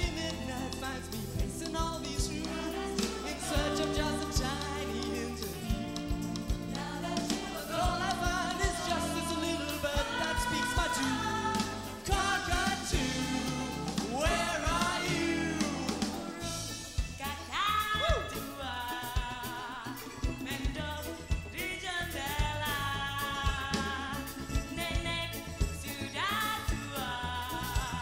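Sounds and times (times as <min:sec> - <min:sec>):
lead singer singing: 0:00.0 - 0:05.9, 0:06.7 - 0:16.6
drums keeping a beat: 0:00.0 - 0:28.0
live pop band playing: 0:00.0 - 0:28.0.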